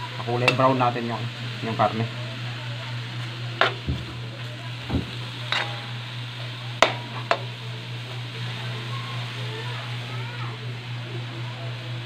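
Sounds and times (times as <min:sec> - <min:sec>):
meat sizzling in oil: 0:00.0 - 0:12.0
metal spatula knocking on pan: 0:03.6 - 0:04.2, 0:04.9 - 0:05.7.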